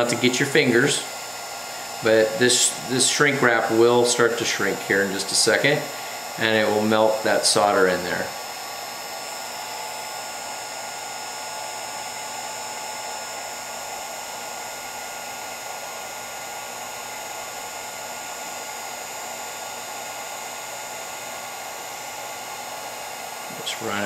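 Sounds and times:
heat gun blowing hot air: 0.0s - 17.2s.

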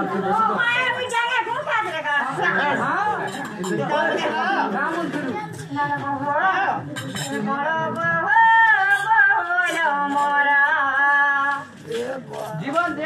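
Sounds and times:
person singing folk song: 5.6s - 13.0s.

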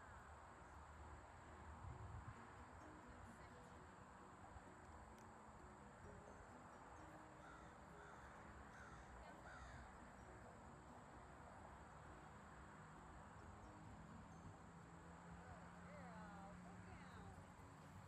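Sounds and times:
faint bird calls: 7.0s - 10.4s.

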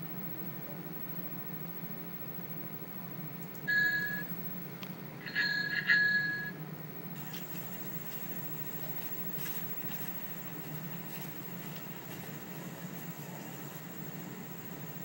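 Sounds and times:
steady low hum: 0.0s - 15.0s
high bell-like ringing tone: 3.7s - 4.4s, 5.2s - 6.6s.

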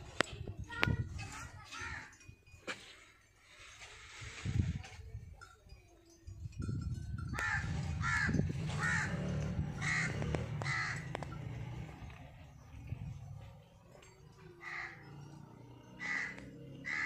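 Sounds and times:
crow cawing: 7.4s - 9.2s, 9.8s - 11.1s, 14.6s - 15.1s, 16.0s - 17.0s.

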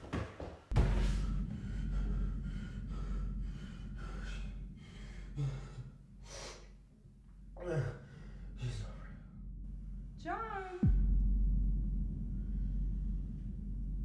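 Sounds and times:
man breathing hard: 0.8s - 7.0s, 7.6s - 9.4s.

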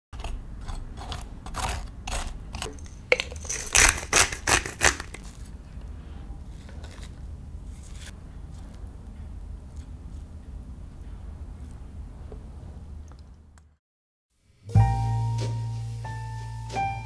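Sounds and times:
fork raking squash flesh: 0.2s - 5.5s, 6.4s - 8.9s
metal spoon scraping squash: 0.2s - 5.5s.

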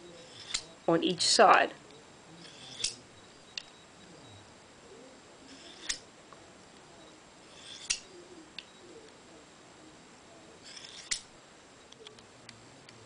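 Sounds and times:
knife scraping on honing rod: 0.1s - 0.8s, 2.4s - 3.3s, 5.5s - 6.0s, 7.4s - 8.2s, 10.6s - 11.3s.

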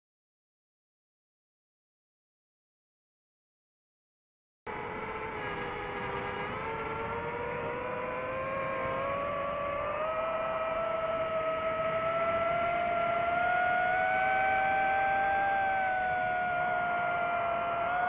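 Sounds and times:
quadcopter motors whining: 4.7s - 18.0s.

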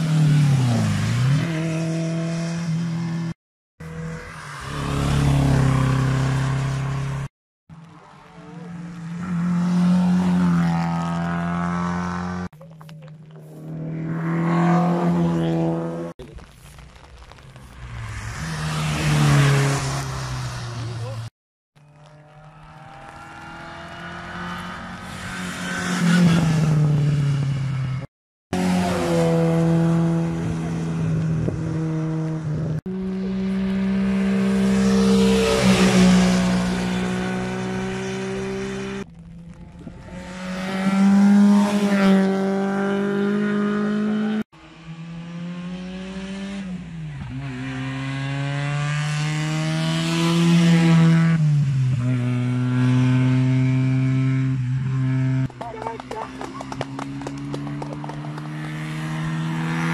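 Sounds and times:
rally car engines accelerating: 28.6s - 59.9s.

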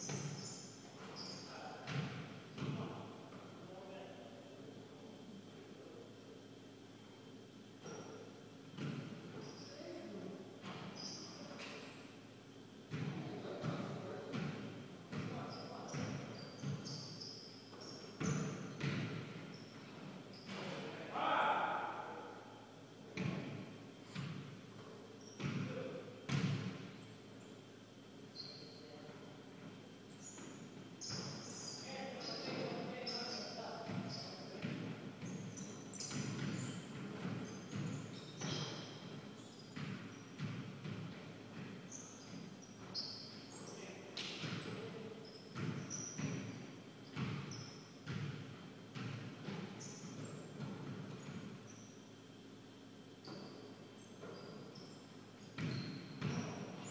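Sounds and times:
sneakers squeaking: 0.0s - 3.5s, 6.4s - 56.9s
basketball bouncing on wooden floor: 1.0s - 2.8s, 12.9s - 13.1s, 13.7s - 17.0s, 17.7s - 20.6s, 25.3s - 25.7s, 26.3s - 26.8s, 33.9s - 39.1s, 39.8s - 43.0s, 45.6s - 51.5s, 55.6s - 56.7s.

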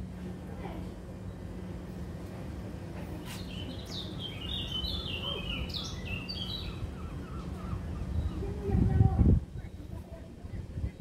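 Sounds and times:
songbird singing: 3.2s - 11.0s.

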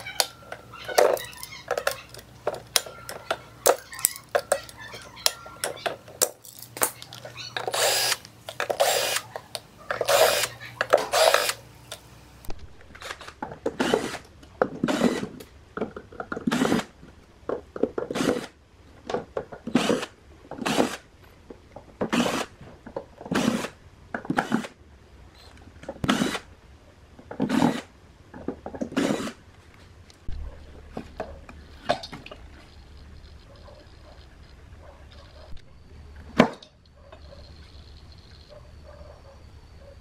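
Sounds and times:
cordless drill driving screws: 7.6s - 9.3s, 9.9s - 11.6s, 13.8s - 15.4s, 22.1s - 22.5s, 26.0s - 26.4s, 28.9s - 29.4s.

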